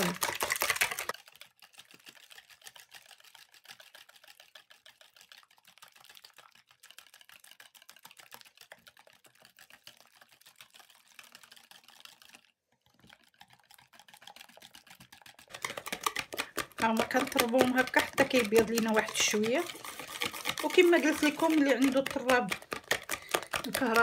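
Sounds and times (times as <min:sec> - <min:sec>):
whisk clicking against plastic bowl: 0:00.0 - 0:01.2, 0:13.1 - 0:24.0.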